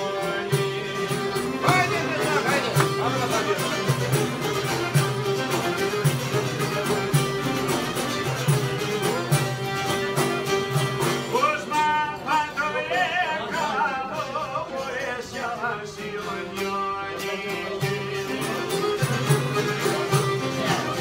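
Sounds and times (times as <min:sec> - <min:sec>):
folk ensemble playing: 0:00.0 - 0:21.0
man singing ornamented melody: 0:11.2 - 0:21.0.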